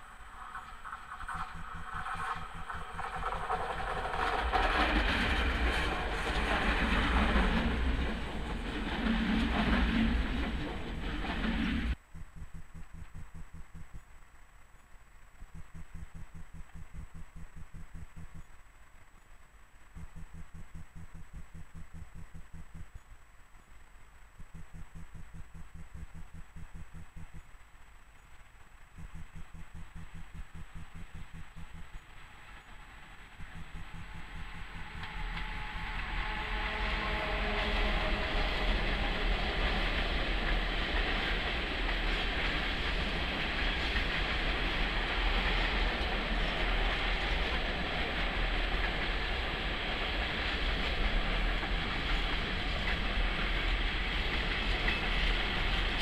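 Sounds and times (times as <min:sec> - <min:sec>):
electric train passing: 0:00.0 - 0:13.9, 0:29.1 - 0:56.0
train wheels on rails: 0:00.0 - 0:14.0, 0:15.5 - 0:18.5, 0:20.0 - 0:23.0, 0:24.4 - 0:27.4, 0:29.0 - 0:56.0
steady hiss: 0:00.0 - 0:56.0.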